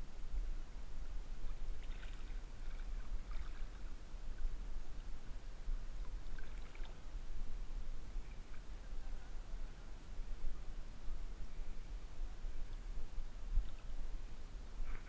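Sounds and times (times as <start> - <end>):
constant low rumble: 0.0 - 15.0
river water sloshing and splashing: 1.5 - 4.6, 6.0 - 7.1.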